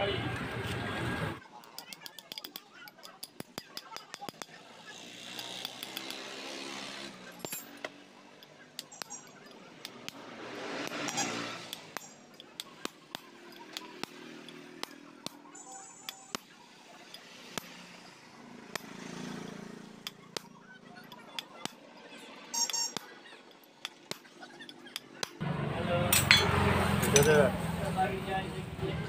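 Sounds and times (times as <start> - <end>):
hammer tapping metal: 1.6 - 4.6, 5.3 - 6.4, 8.4 - 16.5, 26.1 - 27.4.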